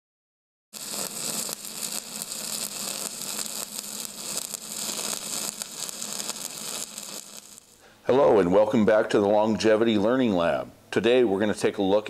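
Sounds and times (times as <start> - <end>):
welding arc crackling: 0.7 - 7.9.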